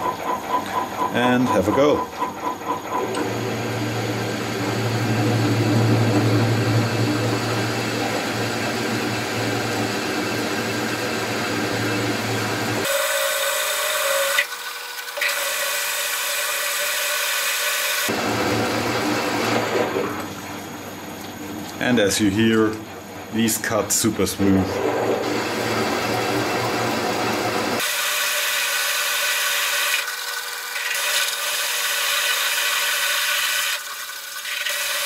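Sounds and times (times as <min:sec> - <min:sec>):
lathe hum: 0:00.0 - 0:35.0
drill cutting into metal: 0:07.0 - 0:19.8, 0:25.2 - 0:35.0.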